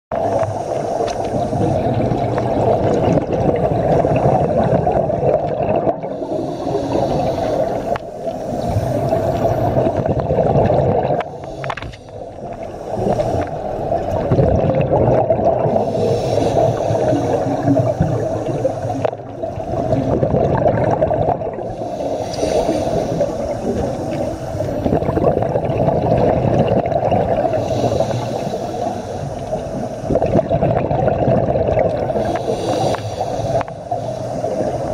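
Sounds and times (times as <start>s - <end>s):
bubbles gurgling underwater: 0.1s - 34.9s
scuba regulator breathing: 0.2s - 3.0s, 6.0s - 14.4s, 15.5s - 20.2s, 21.5s - 25.6s, 27.0s - 30.7s, 31.8s - 34.9s.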